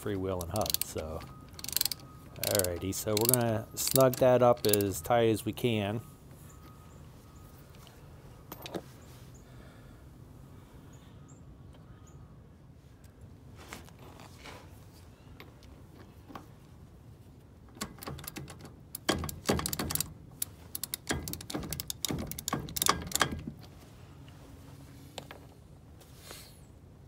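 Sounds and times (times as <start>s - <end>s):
wrench clicking on nut: 0.4s - 5.0s, 17.8s - 23.4s.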